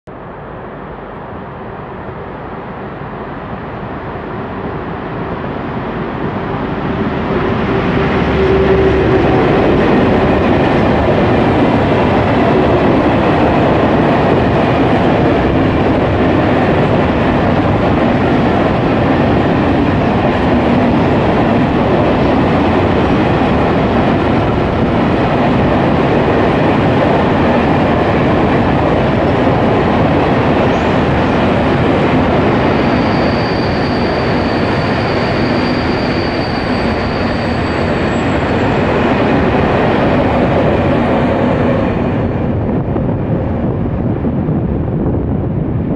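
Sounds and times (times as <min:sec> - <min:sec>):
freight train rumbling past: 0:00.2 - 0:45.9
faint high squeal: 0:32.7 - 0:38.8.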